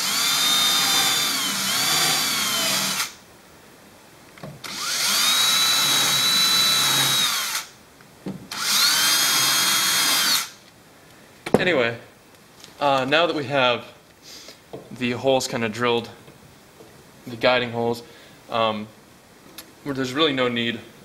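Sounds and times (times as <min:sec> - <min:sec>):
power drill motor whine: 0:00.0 - 0:03.2, 0:04.6 - 0:07.7, 0:08.5 - 0:10.6.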